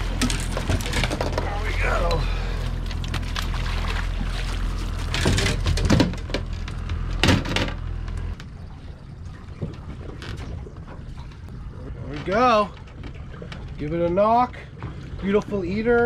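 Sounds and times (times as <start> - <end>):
boat motor hum: 0.0 - 16.0
water pouring off a net: 2.4 - 5.2.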